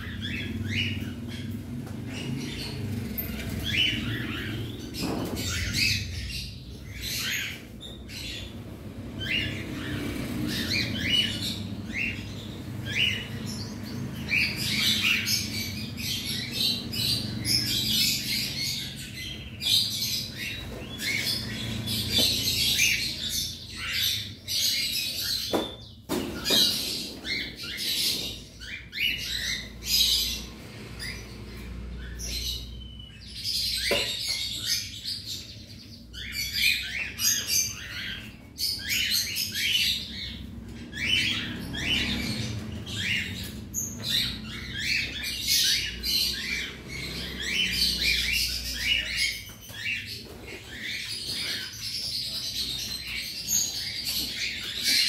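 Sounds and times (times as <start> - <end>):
cockatiels chirping and squawking: 0.0 - 55.0.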